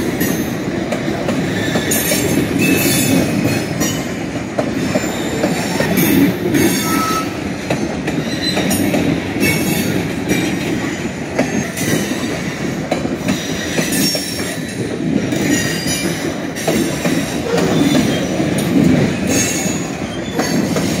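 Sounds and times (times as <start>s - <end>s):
train wheels rumbling on rail: 0.0s - 21.0s
high wheel squeal: 19.2s - 20.8s.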